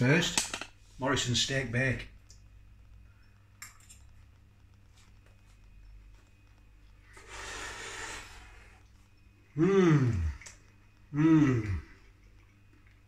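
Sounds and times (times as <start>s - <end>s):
breathy exhale: 7.2s - 8.8s.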